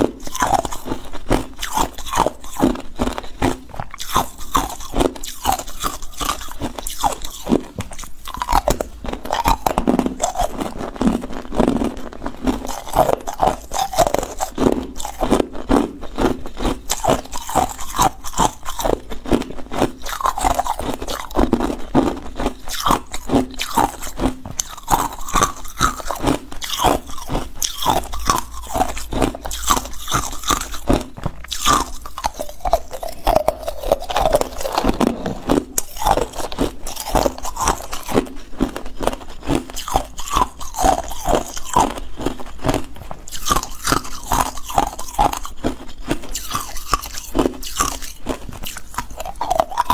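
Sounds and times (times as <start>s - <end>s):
ice cubes crunching: 0.0s - 49.9s.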